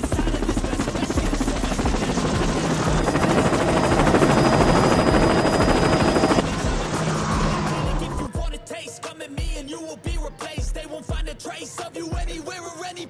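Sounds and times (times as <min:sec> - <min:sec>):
rapid chopping flutter: 0:00.0 - 0:08.3.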